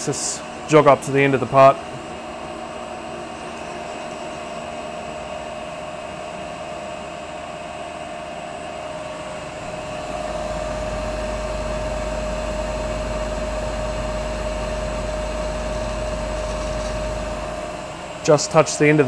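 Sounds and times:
lathe spindle whining: 1.9 - 19.0
deep rumble: 9.4 - 18.2.

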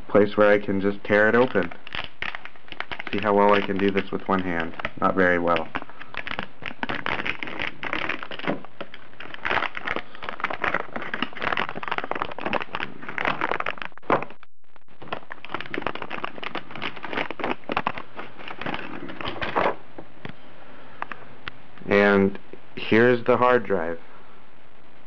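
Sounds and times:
plastic packaging crinkling: 1.1 - 19.8.

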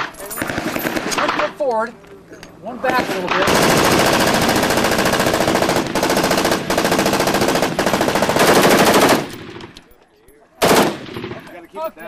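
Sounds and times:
automatic rifle fire: 2.9 - 9.7, 10.6 - 11.4.

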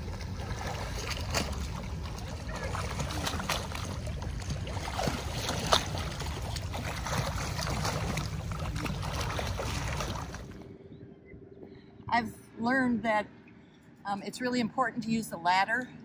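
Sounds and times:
water splashing from swimmer: 0.0 - 10.6
steady low rumble: 0.0 - 16.0.

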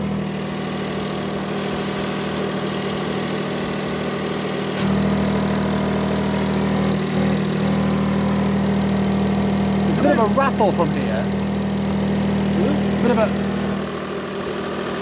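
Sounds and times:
exhaust gas hissing: 0.0 - 15.0
car engine idling: 5.0 - 14.7.

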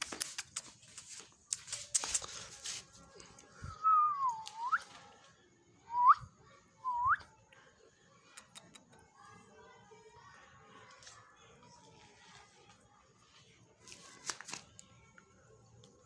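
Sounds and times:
person whistling: 5.9 - 6.2, 6.9 - 7.2.

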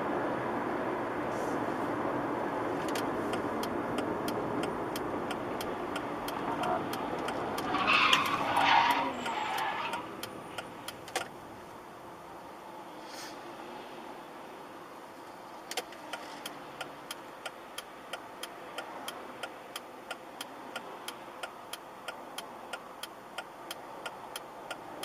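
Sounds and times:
road noise inside moving car: 0.0 - 25.0
light ticking: 2.9 - 7.7
car tyres squealing: 5.9 - 10.7.

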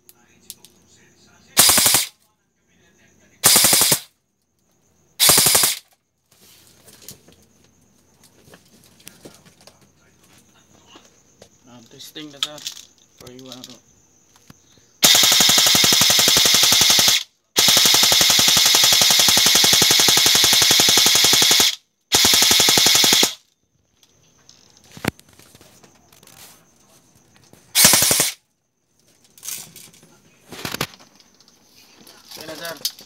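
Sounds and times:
airsoft rifle firing: 1.6 - 2.1, 3.4 - 4.1, 5.2 - 5.9, 15.0 - 23.4, 27.7 - 28.4.

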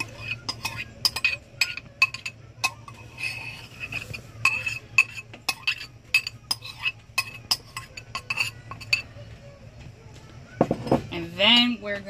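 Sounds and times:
metal spoon clinking on ceramic bowl: 0.0 - 9.1.

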